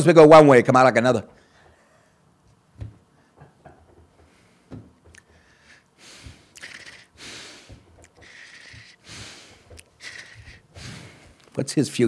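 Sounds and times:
man breathing out heavily: 0:04.3 - 0:11.4.

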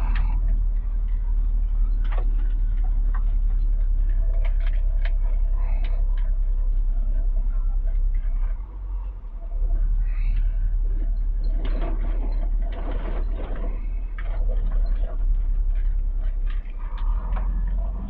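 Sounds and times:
cab ticks and rattles: 0:00.0 - 0:18.0
truck diesel engine rumbling: 0:00.0 - 0:18.0.

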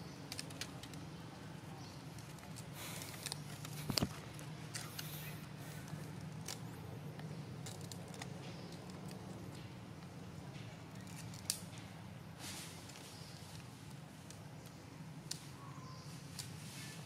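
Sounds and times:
light clicks and rustles: 0:00.2 - 0:17.0.

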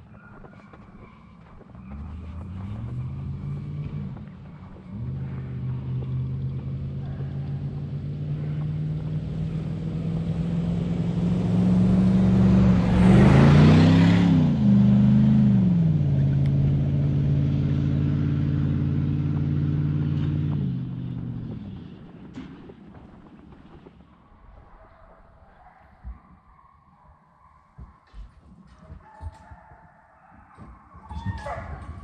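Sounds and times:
vehicle engine driving: 0:00.0 - 0:24.2.

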